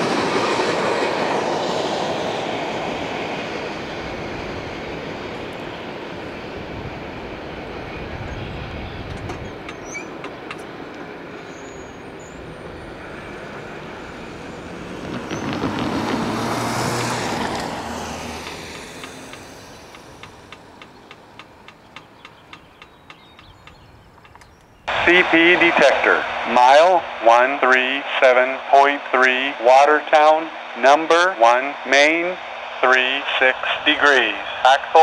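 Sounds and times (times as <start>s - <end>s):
freight train rumble: 0.0s - 35.0s
car passing over crossing: 12.0s - 23.0s.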